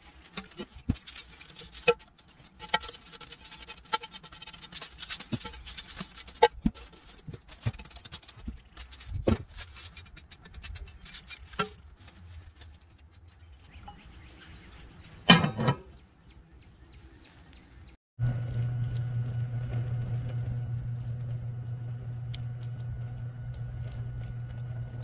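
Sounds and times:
iron lid clattering on pot: 15.3 - 15.8.

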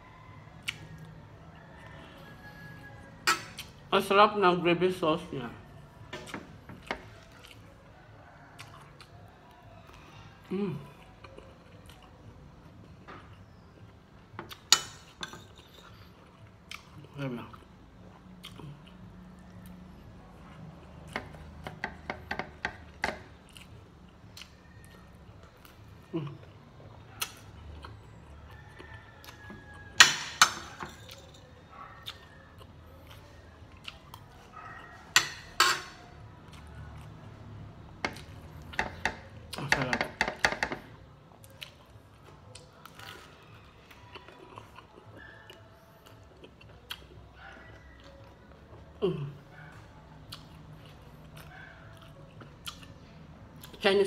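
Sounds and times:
metal spoon clinking on plate: 30.0 - 31.4, 35.2 - 36.0.

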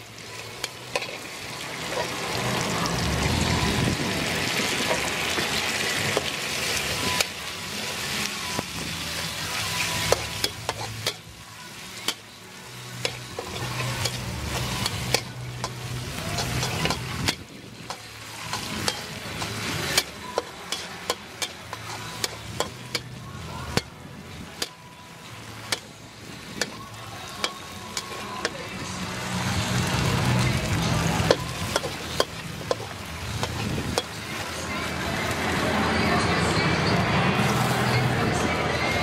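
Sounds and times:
noodles sizzling in a wok: 0.0 - 35.4
metal ladle scraping a wok: 0.4 - 2.6, 9.2 - 24.8.

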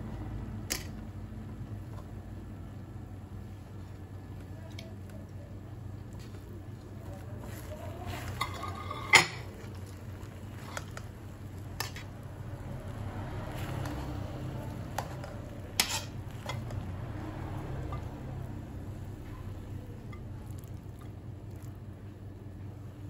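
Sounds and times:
low steady hum: 0.0 - 23.0
metal spoon scraping a pan: 8.1 - 9.7, 14.9 - 16.8.

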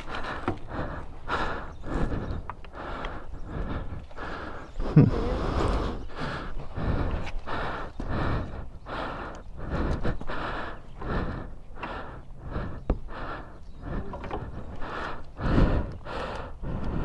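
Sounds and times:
person panting: 0.0 - 17.0.

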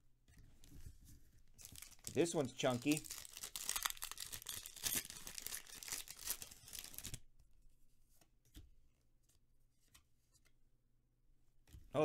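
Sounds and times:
foil wrapper tearing and crinkling: 1.6 - 7.2.

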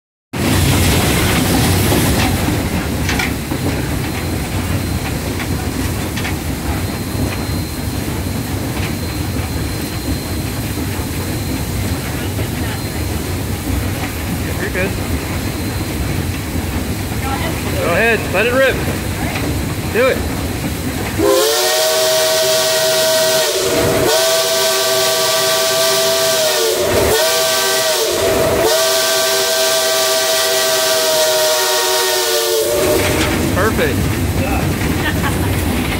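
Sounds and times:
steam locomotive rumble: 0.3 - 35.9
steam whistle chord: 21.2 - 33.3.

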